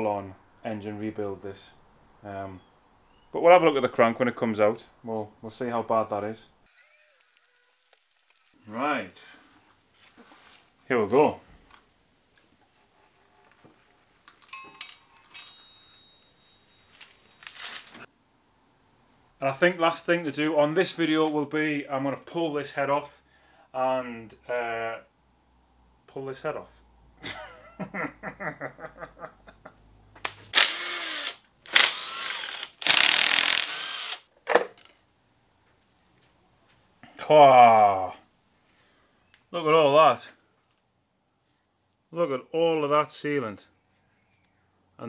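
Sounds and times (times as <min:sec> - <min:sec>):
short rustle: 0:09.3 - 0:11.8, 0:12.6 - 0:18.1
sharp metal clinks: 0:14.4 - 0:17.5
man laughing: 0:27.2 - 0:29.9
cordless drill whirring: 0:30.5 - 0:34.3.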